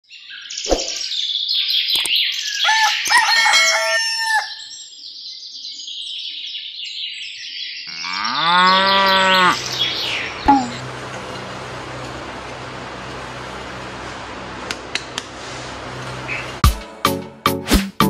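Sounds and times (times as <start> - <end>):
birds chirping: 4.6 - 11.0
cow mooing: 7.9 - 9.8.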